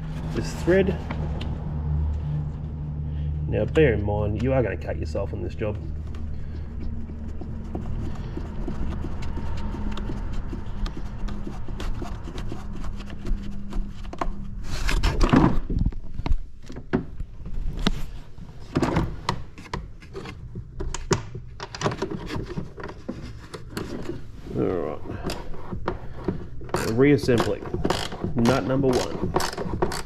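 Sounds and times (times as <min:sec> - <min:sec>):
steady low hum: 0:00.0 - 0:21.6
tool rubbing and scraping plastic: 0:03.8 - 0:16.8, 0:17.6 - 0:30.0
clicks and knocks of tool on plastic: 0:25.2 - 0:30.0.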